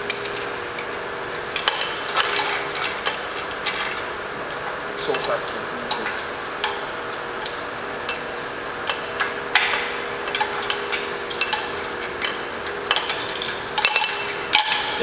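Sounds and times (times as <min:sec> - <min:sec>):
steady background hum: 0:00.0 - 0:15.0
metal chain clinking: 0:01.6 - 0:03.9, 0:05.0 - 0:07.0, 0:08.0 - 0:15.0.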